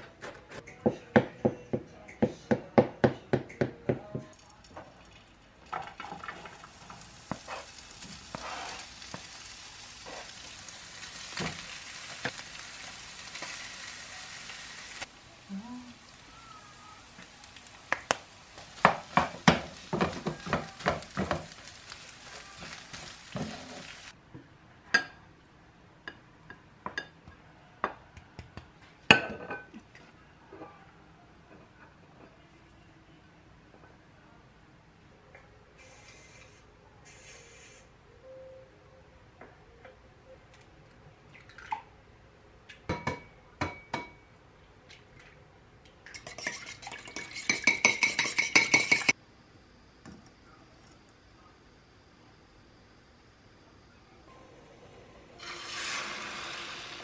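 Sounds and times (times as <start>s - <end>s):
spatula clinking against bowl: 46.1s - 49.2s.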